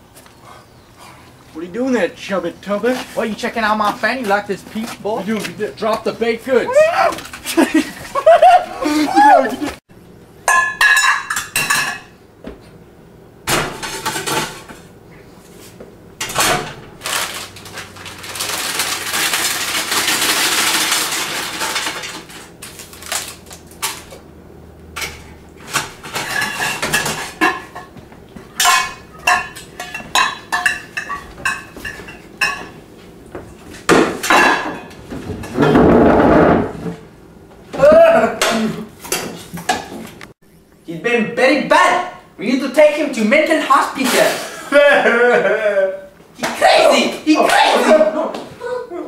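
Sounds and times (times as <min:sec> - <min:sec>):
metal pot and utensils clanking: 0:10.5 - 0:12.2, 0:25.0 - 0:27.9, 0:28.6 - 0:32.8.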